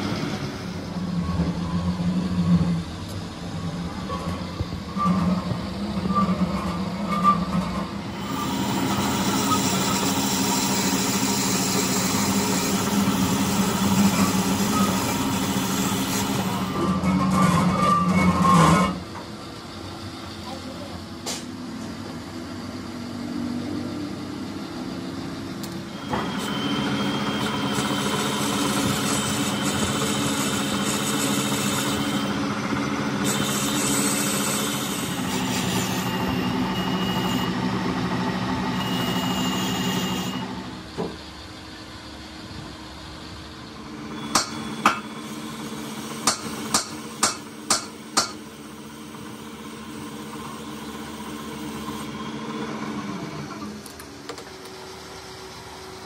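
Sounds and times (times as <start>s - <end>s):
metal lathe humming: 0.0s - 20.4s, 24.3s - 41.0s.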